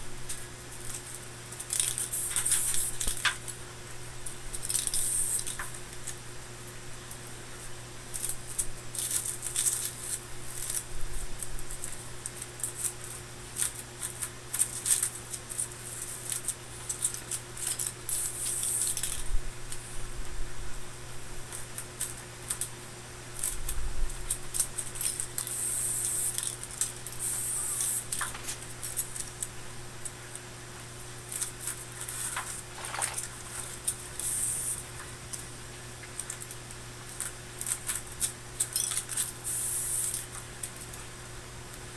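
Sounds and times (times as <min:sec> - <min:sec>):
low electrical hum: 0:00.0 - 0:41.9
aluminium foil crackling: 0:00.2 - 0:03.6, 0:04.2 - 0:06.2, 0:08.1 - 0:19.8, 0:31.2 - 0:35.4.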